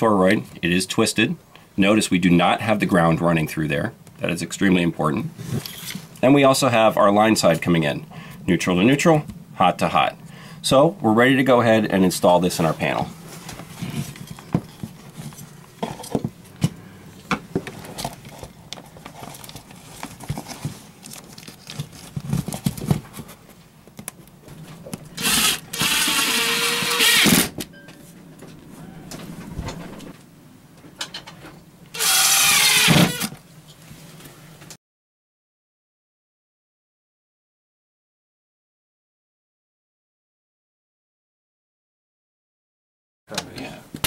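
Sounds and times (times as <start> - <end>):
power drill driving screws: 25.2 - 27.6, 32.0 - 33.4.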